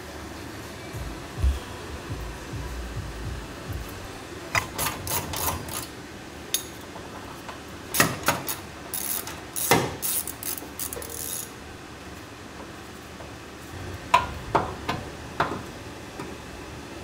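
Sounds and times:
metallic clicks of hand tools: 0:04.6 - 0:05.9.

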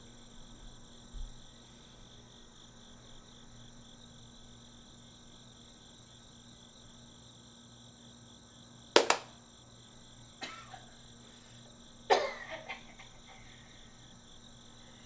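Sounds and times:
faint steady hum: 0:00.0 - 0:15.0
sharp bangs: 0:09.0 - 0:09.3.

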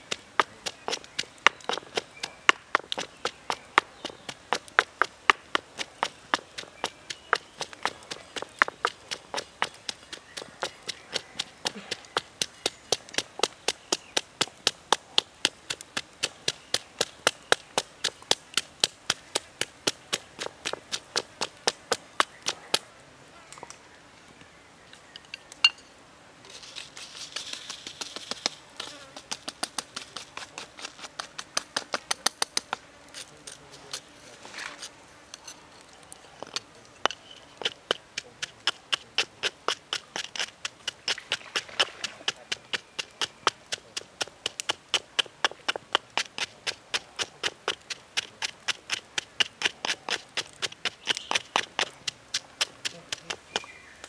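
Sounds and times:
pestle pounding in stone mortar: 0:00.0 - 0:22.6, 0:36.4 - 0:53.8.

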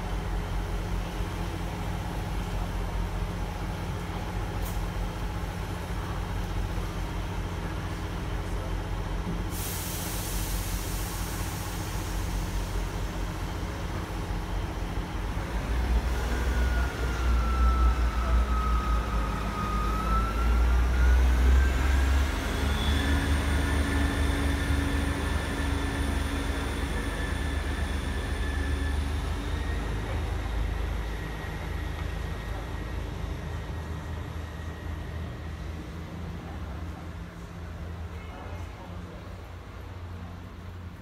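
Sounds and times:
diesel train engine: 0:00.0 - 0:41.0
brief hiss: 0:09.3 - 0:12.4.

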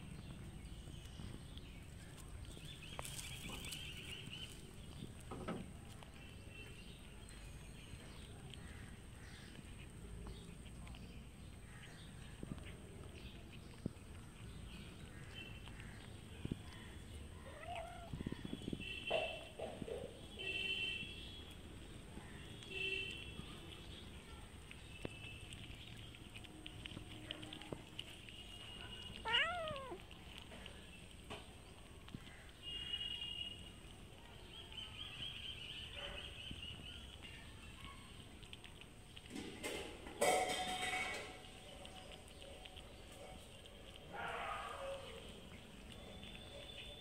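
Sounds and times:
cats chewing: 0:00.0 - 0:47.0
cat meow: 0:17.4 - 0:18.3, 0:29.1 - 0:30.1.

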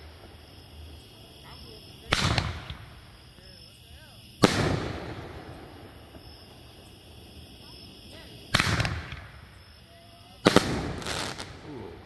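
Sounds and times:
sharp firework bangs: 0:00.0 - 0:12.0
firework shell bursts: 0:02.0 - 0:03.7, 0:08.4 - 0:09.7.

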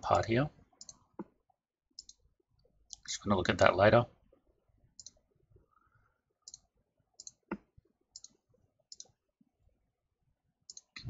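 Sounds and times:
computer mouse clicks: 0:00.8 - 0:01.0, 0:02.0 - 0:02.2, 0:05.0 - 0:05.2, 0:06.5 - 0:09.2, 0:10.7 - 0:11.0.

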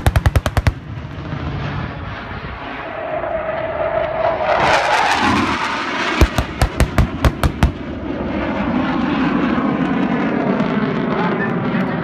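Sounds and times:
pyrotechnic blasts: 0:00.0 - 0:11.8
jet flying overhead: 0:00.0 - 0:12.0.

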